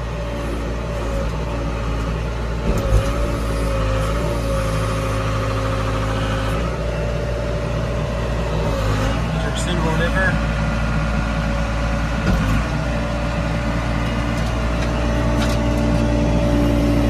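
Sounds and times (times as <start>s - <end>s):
diesel engine running: 0.0s - 17.0s
thump: 12.2s - 12.6s.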